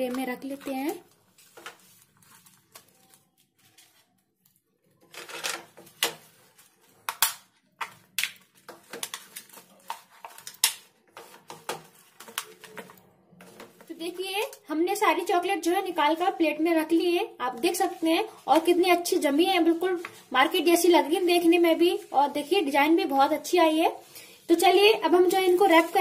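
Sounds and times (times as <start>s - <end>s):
plastic mould clicking and crackling: 7.0s - 13.9s.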